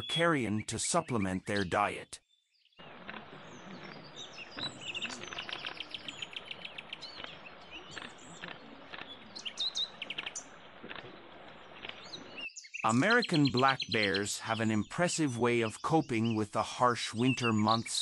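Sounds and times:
small birds chirping: 0:00.0 - 0:18.0
flowing water hiss: 0:02.8 - 0:14.6.

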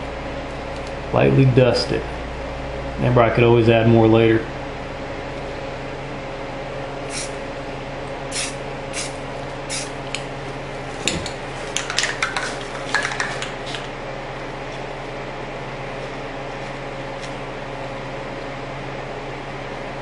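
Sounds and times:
steady low hum: 0:00.0 - 0:20.0
spray paint can hissing: 0:07.1 - 0:07.4, 0:08.3 - 0:10.0.

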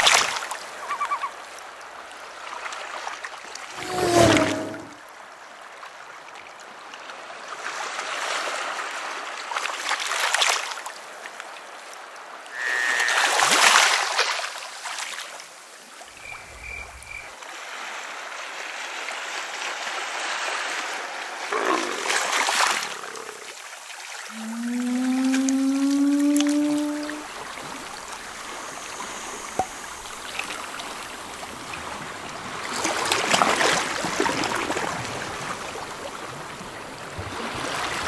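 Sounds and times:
sea water washing: 0:21.4 - 0:38.0.

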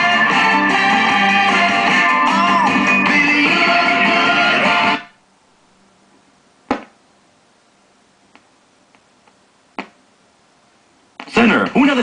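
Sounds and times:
guitar music from speakers: 0:00.0 - 0:05.1
faint low hum: 0:05.1 - 0:11.9.

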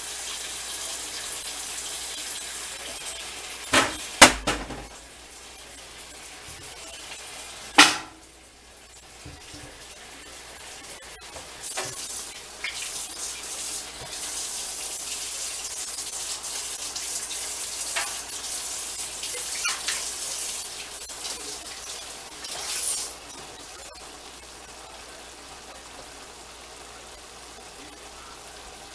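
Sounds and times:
tap water running into sink: 0:00.0 - 0:05.1, 0:09.2 - 0:09.9, 0:10.6 - 0:23.2.

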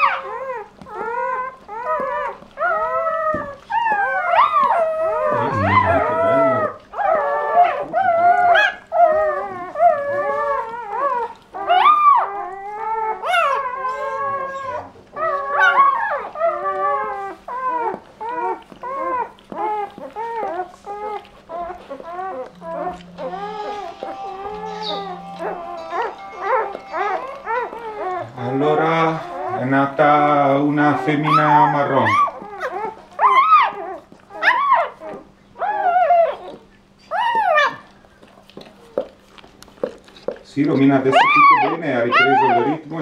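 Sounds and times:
puppies crying: 0:00.0 - 0:43.0.

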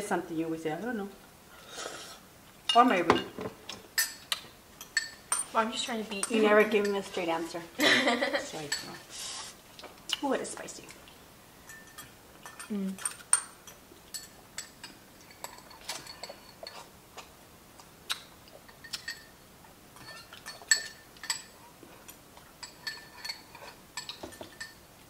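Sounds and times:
utensils clinking on ceramic bowl: 0:02.7 - 0:07.6, 0:08.3 - 0:09.0, 0:11.6 - 0:16.9, 0:18.7 - 0:19.3, 0:20.0 - 0:24.8
soft chewing: 0:10.8 - 0:24.7.

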